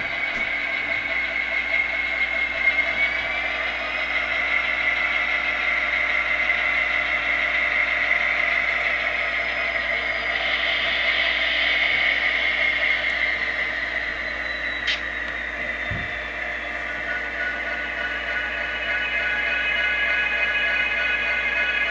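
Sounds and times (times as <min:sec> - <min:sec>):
thin diesel engine drone from speaker: 0:00.0 - 0:21.9.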